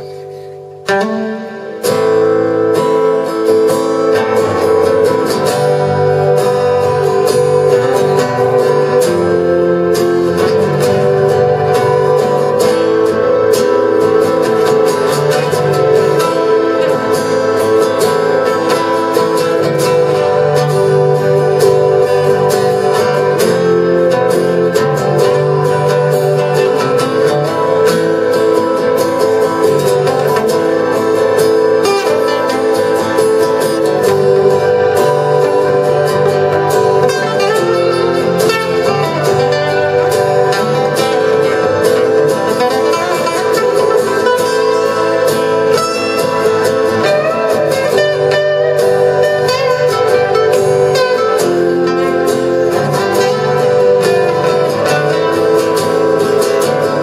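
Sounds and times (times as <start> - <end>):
acoustic guitars strumming: 0.0 - 57.0
keyboard sustained notes: 0.0 - 57.0.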